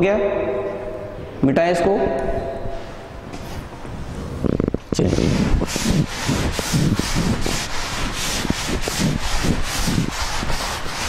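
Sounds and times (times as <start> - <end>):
duster rubbing on chalk blackboard: 3.4 - 11.0.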